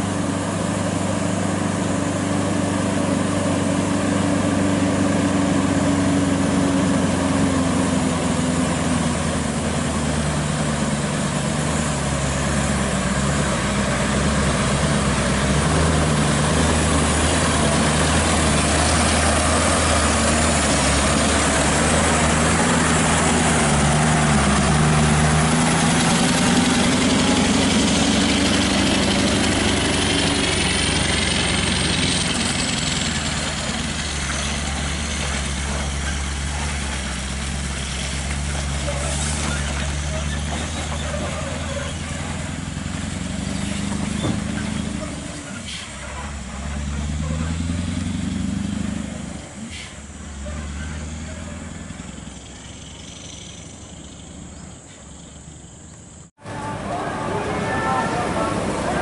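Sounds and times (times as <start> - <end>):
truck diesel engine droning: 0.0 - 59.0.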